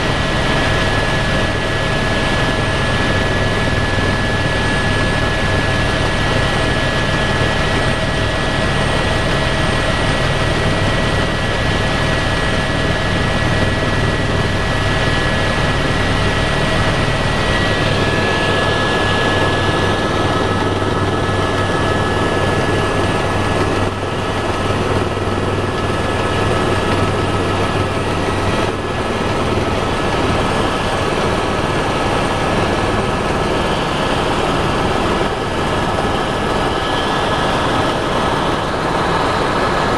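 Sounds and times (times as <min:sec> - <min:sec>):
helicopter rotor and engine drone: 0:00.0 - 0:39.9.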